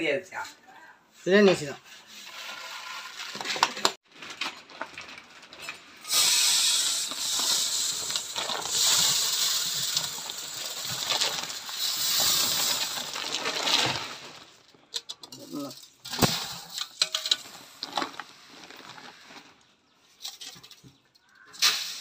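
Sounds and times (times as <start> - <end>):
hands rustling plastic sack: 2.2 - 14.7, 17.4 - 19.7
rice grains pouring into steel pail: 5.6 - 14.5, 21.6 - 22.0.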